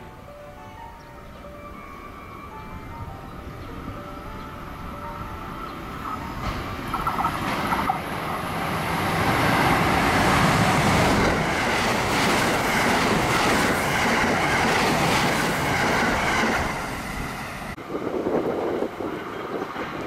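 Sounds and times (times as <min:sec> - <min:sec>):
train rushing past: 0:02.0 - 0:20.0
wheels clattering over rails: 0:06.0 - 0:16.6.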